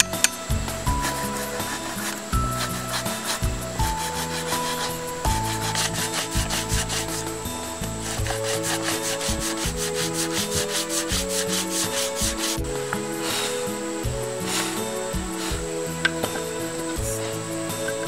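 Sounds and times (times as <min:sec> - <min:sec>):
background music: 0:00.0 - 0:18.0
sanding stick scraping wood: 0:00.9 - 0:13.7.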